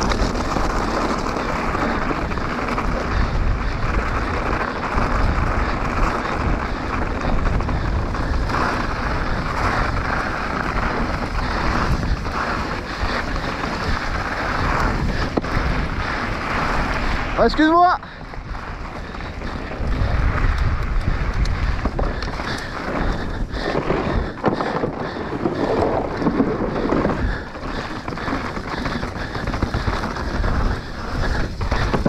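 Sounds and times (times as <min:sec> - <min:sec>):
bike tyres rolling rattle: 0:00.0 - 0:32.0
small knocks of bike: 0:00.0 - 0:32.0
wind rushing over microphone: 0:00.0 - 0:32.0.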